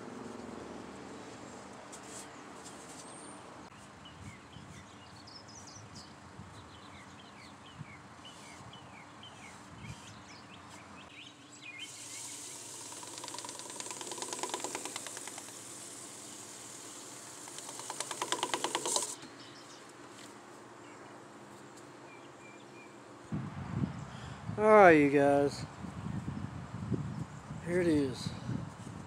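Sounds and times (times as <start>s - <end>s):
birds chirping: 2.2s - 21.3s
steady hiss: 11.7s - 19.2s
scratchy rubbing on wood: 17.4s - 19.2s.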